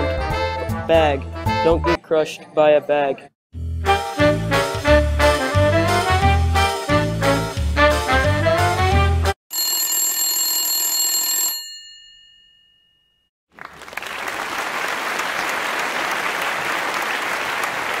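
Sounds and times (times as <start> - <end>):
bell-like ring: 9.5 - 13.3
applause: 13.5 - 18.0.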